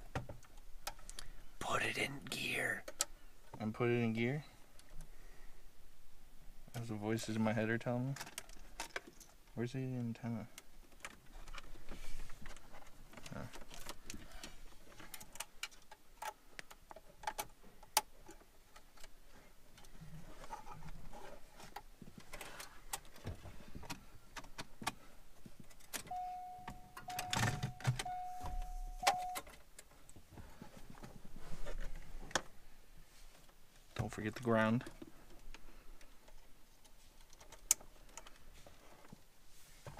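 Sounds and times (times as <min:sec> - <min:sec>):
wiring connectors clicking and rattling: 0:07.9 - 0:20.1, 0:34.0 - 0:39.2
steady electronic beep: 0:26.1 - 0:29.4.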